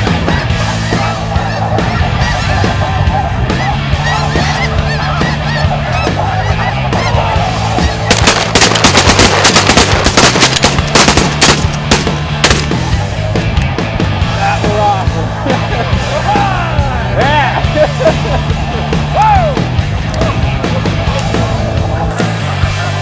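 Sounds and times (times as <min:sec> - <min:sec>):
flock of geese calling: 0:00.0 - 0:13.2, 0:14.3 - 0:23.0
shotgun blasts: 0:08.1 - 0:12.8.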